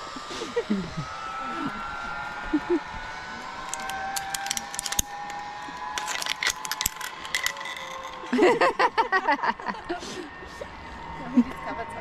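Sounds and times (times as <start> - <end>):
zipline pulleys whining on cable: 0.0 - 12.0
clicks and rattles: 3.7 - 8.4.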